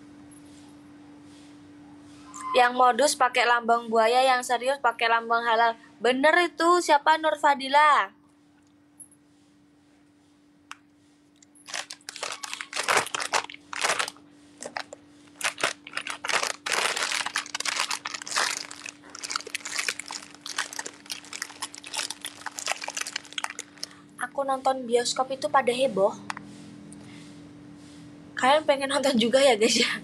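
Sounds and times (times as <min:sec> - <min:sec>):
plastic wrapper crinkling: 0:11.4 - 0:24.0.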